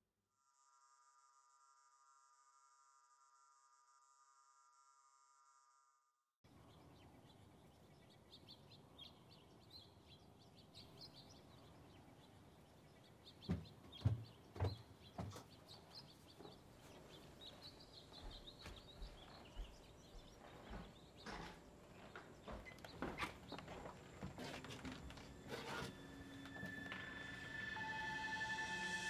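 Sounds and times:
birds chirping faintly: 6.5 - 28.9
soft knocks and thumps: 13.4 - 15.6.

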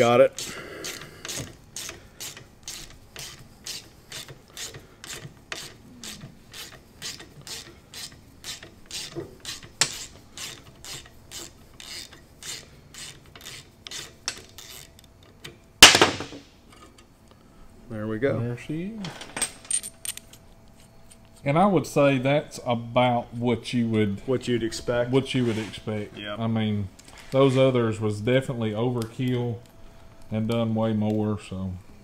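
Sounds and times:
ratchet wrench clicking: 0.0 - 15.1.

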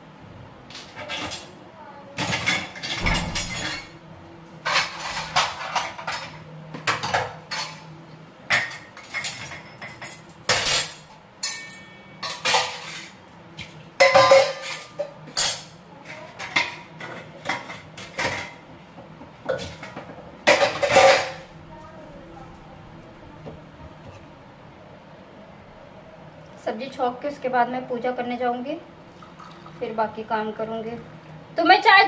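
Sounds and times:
metal utensils clattering: 2.2 - 3.9, 4.6 - 7.8, 8.5 - 13.2, 14.0 - 15.7, 19.6 - 21.5.

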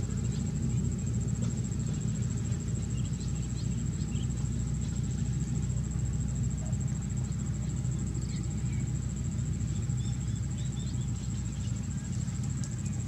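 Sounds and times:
faint bird chirps: 6.6 - 12.2.

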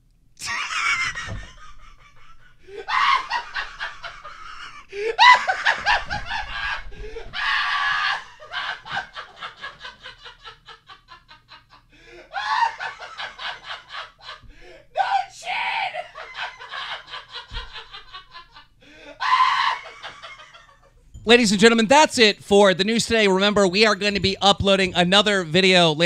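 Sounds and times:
man laughing hard: 0.4 - 21.0.

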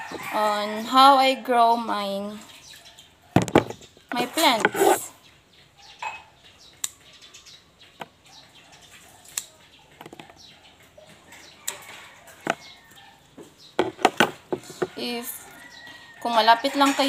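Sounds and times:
scissors snipping plant stems: 9.3 - 9.5.

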